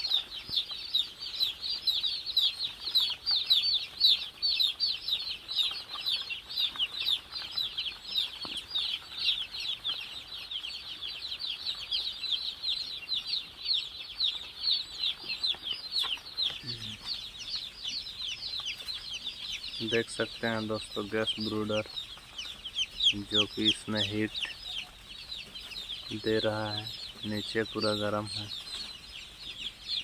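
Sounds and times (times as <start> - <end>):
chicks peeping in chorus: 0.0 - 30.0.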